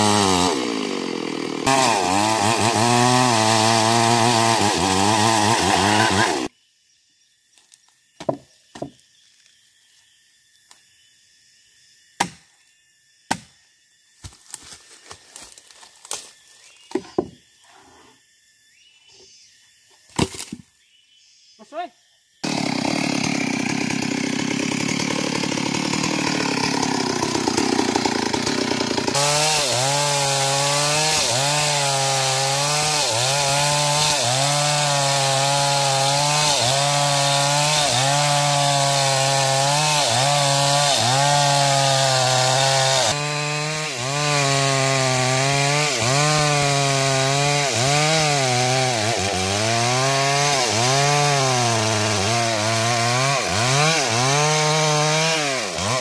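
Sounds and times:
chainsaw cutting into wood: 0.0s - 6.5s, 22.4s - 56.0s.

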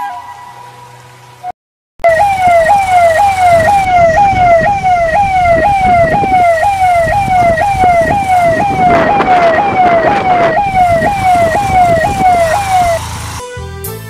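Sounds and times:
electronic siren wailing: 2.0s - 13.4s
low rumble: 2.2s - 13.4s
background music: 12.2s - 14.0s.

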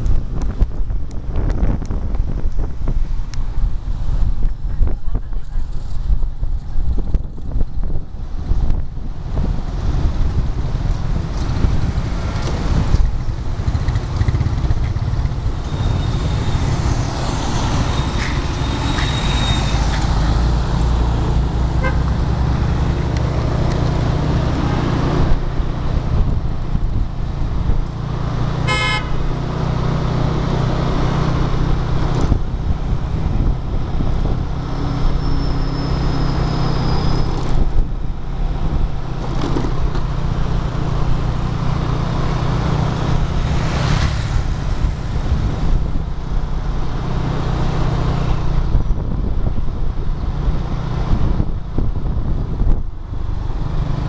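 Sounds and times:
street traffic: 0.0s - 54.0s
wind rumbling on microphone: 0.0s - 54.0s
motorbike engine running: 13.2s - 15.6s
short horn toot: 21.8s - 22.1s, 28.7s - 29.3s.

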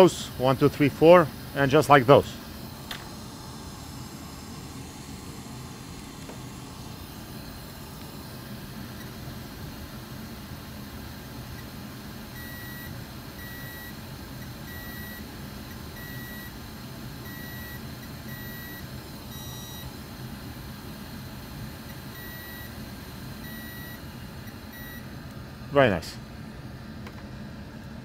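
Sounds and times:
equipment hum and hiss: 0.0s - 28.0s.

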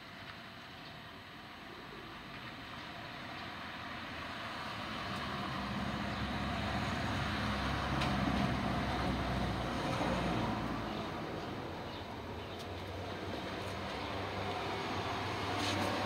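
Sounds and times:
vehicle passing by: 4.3s - 11.9s, 12.7s - 16.0s.

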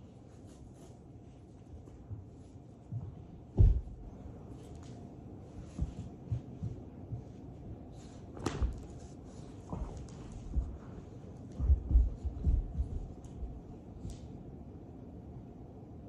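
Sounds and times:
dog thumping on carpet: 2.9s - 4.7s, 8.3s - 9.0s, 9.6s - 14.4s.

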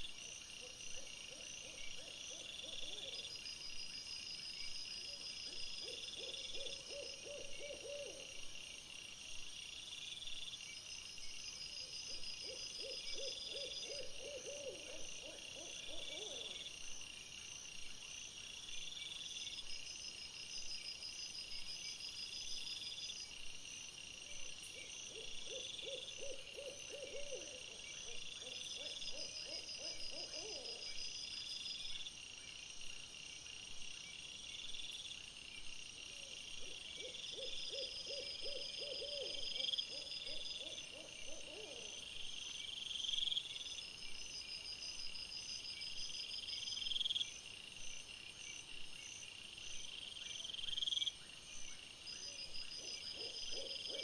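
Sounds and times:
owl hooting: 5.8s - 8.3s, 12.5s - 16.4s, 25.1s - 27.6s, 37.0s - 41.9s.

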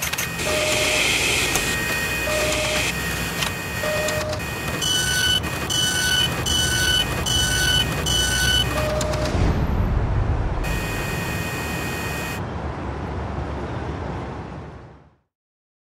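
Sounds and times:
mechanical whir: 0.0s - 9.5s
two-tone beeps: 3.8s - 9.4s.

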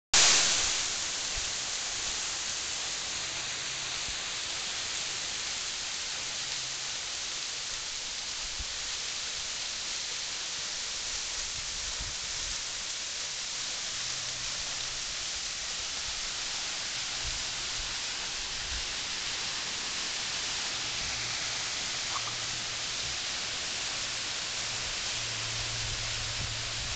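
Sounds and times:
waterfall rushing: 0.2s - 26.9s.

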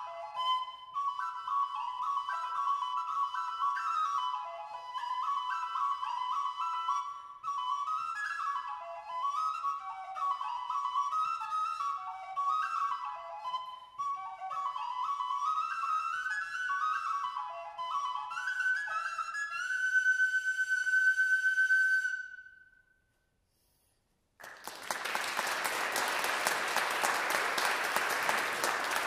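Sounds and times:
tin whistle playing a reel: 0.0s - 22.8s
audience applauding: 24.4s - 29.0s.

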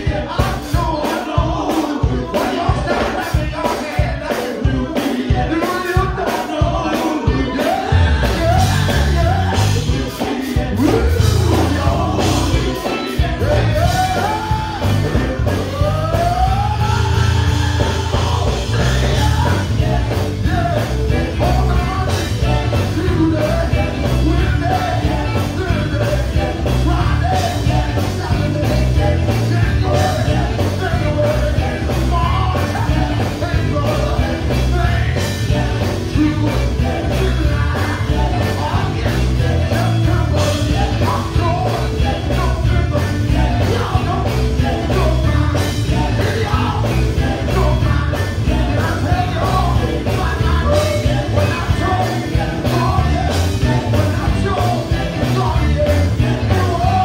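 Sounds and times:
band with fast beat: 0.0s - 57.0s
heavy bass: 0.0s - 57.0s
male vocal group singing and shouting: 0.0s - 57.0s.

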